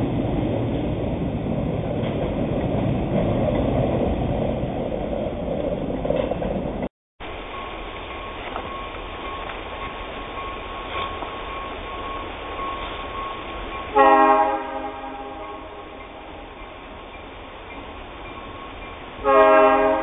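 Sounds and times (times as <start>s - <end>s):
train horn blast: 13.9s - 16.0s, 19.2s - 20.0s.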